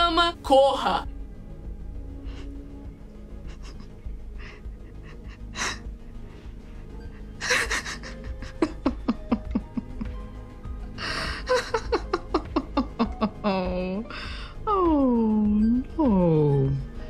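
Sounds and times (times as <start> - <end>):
low sustained film score: 0.0 - 17.0
woman laughing and gasping: 3.4 - 10.2, 11.0 - 13.4.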